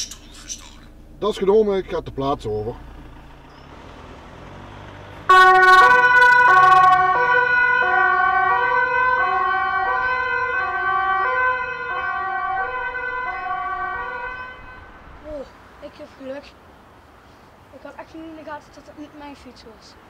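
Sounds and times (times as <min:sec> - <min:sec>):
police car two-tone siren: 0:05.3 - 0:14.9.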